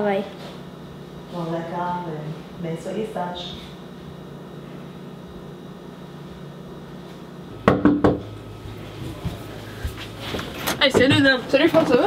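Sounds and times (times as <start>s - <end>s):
faint room tone hum: 0.0s - 12.0s
knocks on a door: 7.6s - 8.3s.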